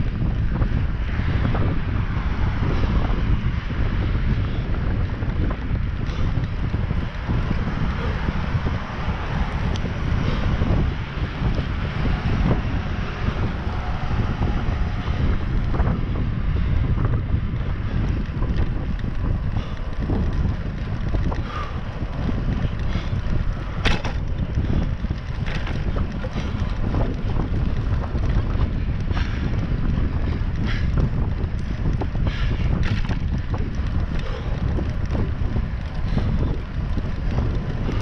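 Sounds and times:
bicycle tyres rolling on asphalt: 0.0 - 38.0
wind buffeting microphone: 0.0 - 38.0
small clicks and rattles: 17.5 - 38.0.

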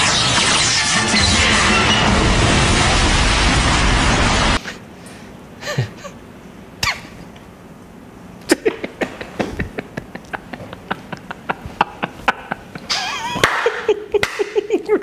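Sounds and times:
cartoon explosion: 0.0 - 4.6.

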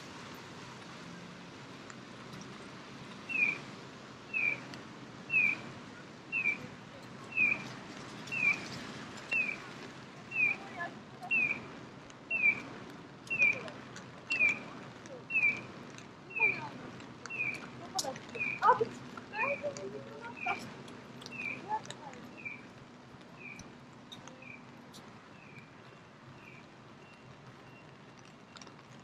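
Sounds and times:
crossing signal bird-like chirp: 3.3 - 3.6, 4.3 - 4.6, 5.3 - 5.7, 6.3 - 6.7, 7.3 - 7.7, 8.3 - 9.6, 11.3 - 11.7, 12.3 - 12.7, 14.3 - 14.7, 15.3 - 15.7, 17.3 - 17.6, 21.3 - 21.7.

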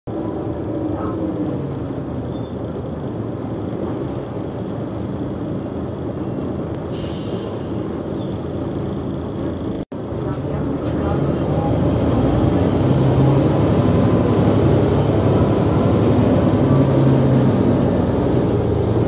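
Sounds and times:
bus diesel engine idling: 0.1 - 19.0.

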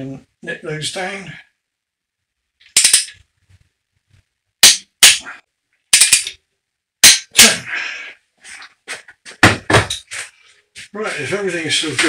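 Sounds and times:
torque wrench clicking: 2.7 - 3.2.

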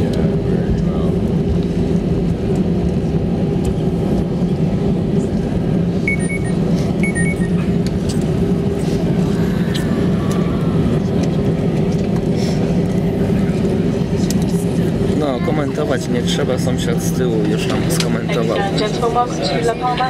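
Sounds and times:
aircraft engine and runway rumble: 0.0 - 20.0.

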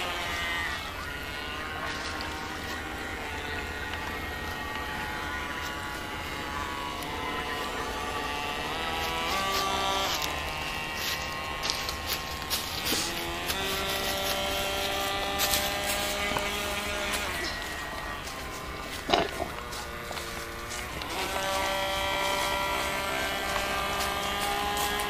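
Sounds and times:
electric motor whining: 0.0 - 25.0.

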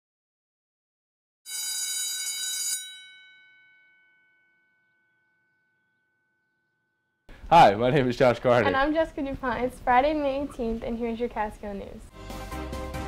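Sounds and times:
bell-like chime chord: 2.7 - 7.0.

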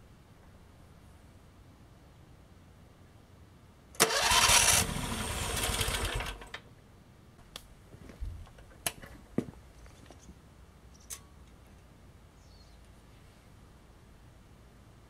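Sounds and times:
electric starter cranking engine: 4.0 - 6.6.

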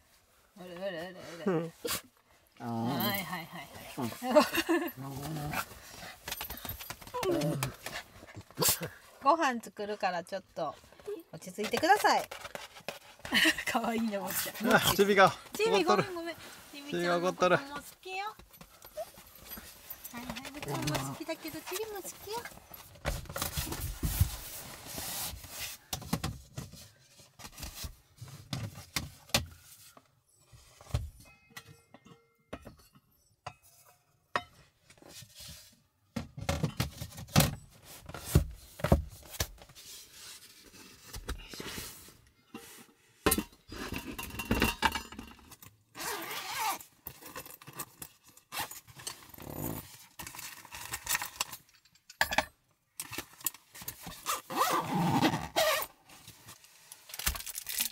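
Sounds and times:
dishes and utensils clinking: 43.3 - 45.4.

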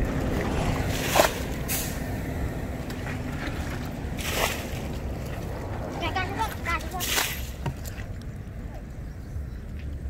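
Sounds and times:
squelching in mud: 0.0 - 2.0, 2.8 - 8.2
sharp water splash: 0.0 - 2.2, 3.3 - 5.5, 6.8 - 8.0
steady low rumble: 0.0 - 10.0.

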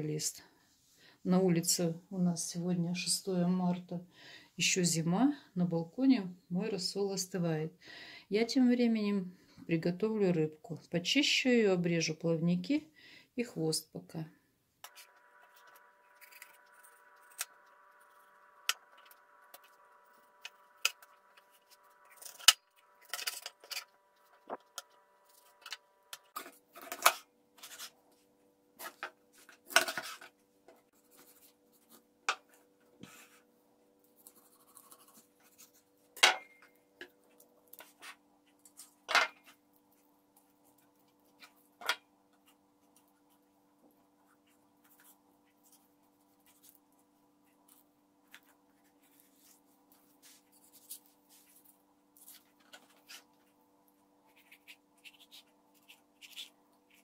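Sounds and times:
faint hum: 14.3 - 26.7.

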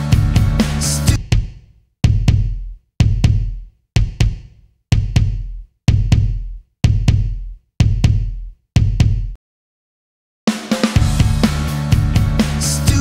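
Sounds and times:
kick drum double beat: 0.2 - 9.4.

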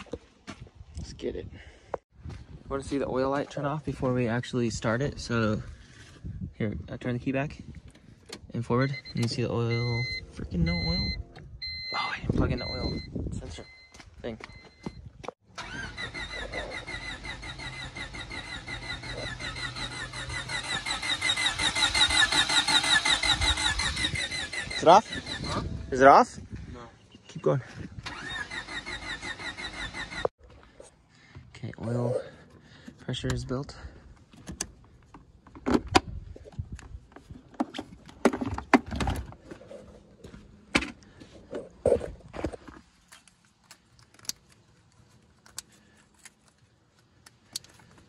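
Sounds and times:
car engine cranking on starter: 15.5 - 25.5, 28.0 - 30.3
tools and parts clanking: 34.2 - 39.9.

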